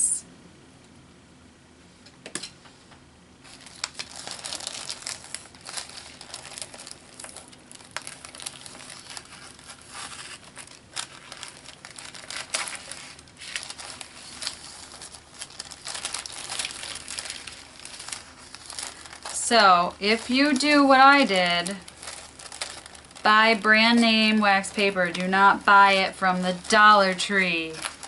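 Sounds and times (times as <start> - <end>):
wax paper crinkling: 3.4 - 28.0.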